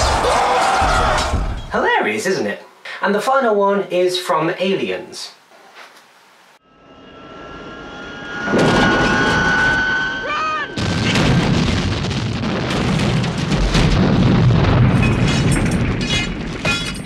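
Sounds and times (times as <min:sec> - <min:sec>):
rising held tone: 0:06.6 - 0:11.0
heavy explosions: 0:08.5 - 0:09.8, 0:10.6 - 0:17.0
rumbling booms: 0:10.6 - 0:17.0.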